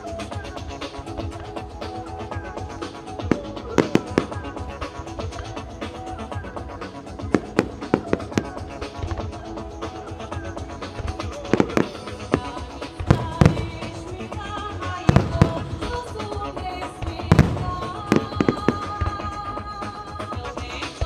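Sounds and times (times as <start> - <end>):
music: 0.0 - 21.0
fireworks booming: 11.0 - 16.4, 17.0 - 19.5.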